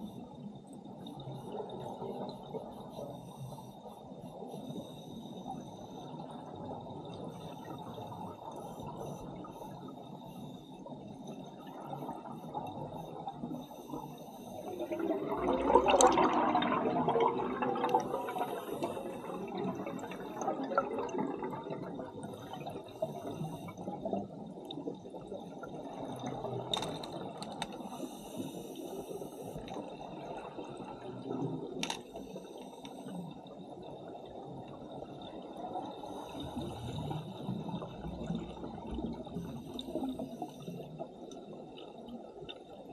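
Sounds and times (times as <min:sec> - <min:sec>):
diver exhaling bubbles gurgling: 0:14.7 - 0:23.2
low bubbling water noise: 0:14.7 - 0:26.8.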